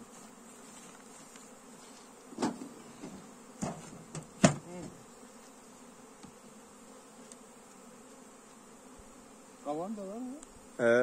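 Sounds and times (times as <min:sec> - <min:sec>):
honeybees buzzing: 0:00.0 - 0:11.0
hive lid knocking on wooden box: 0:02.4 - 0:05.0.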